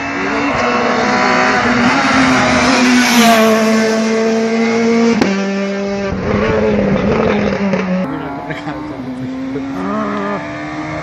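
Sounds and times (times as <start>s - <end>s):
rally car engine revving hard: 0.0s - 11.0s
rally car engine at steady high note: 3.5s - 11.0s.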